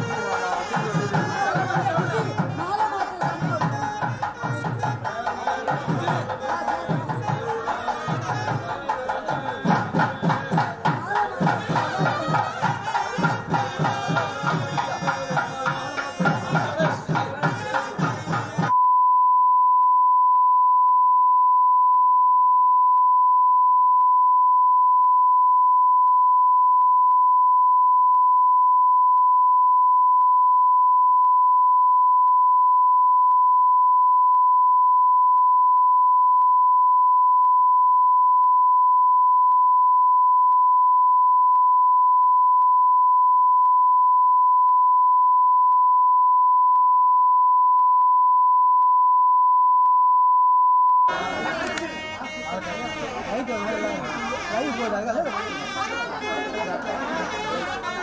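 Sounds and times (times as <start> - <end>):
steady sine test tone: 18.8 - 51.1.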